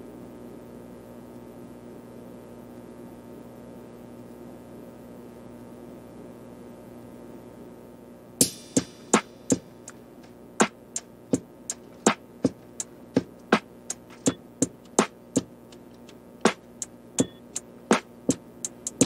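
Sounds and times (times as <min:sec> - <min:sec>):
electronic beat of clicks: 0:08.4 - 0:10.0, 0:10.6 - 0:19.0.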